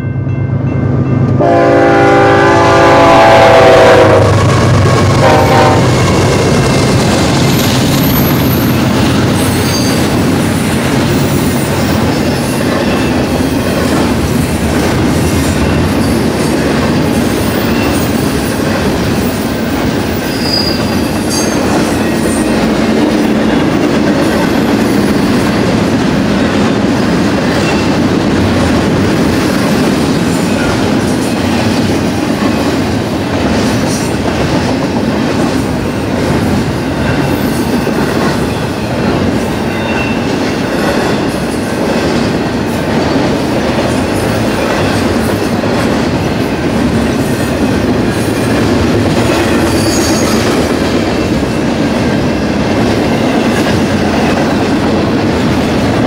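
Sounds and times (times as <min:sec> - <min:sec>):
freight train wheels rumbling: 0:00.0 - 0:56.0
wheel squeals: 0:20.2 - 0:21.8, 0:49.6 - 0:50.4.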